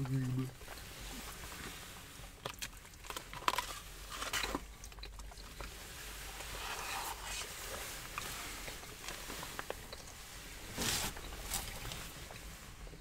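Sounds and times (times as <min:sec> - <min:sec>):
chewing and mouth sounds: 0:00.0 - 0:12.5
plastic containers clicking and rustling: 0:02.2 - 0:05.8.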